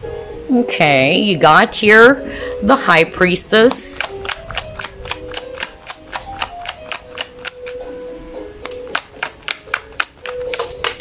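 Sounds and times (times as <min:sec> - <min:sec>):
soft background music: 0:00.0 - 0:11.0
cards being shuffled: 0:03.7 - 0:07.9, 0:08.6 - 0:11.0.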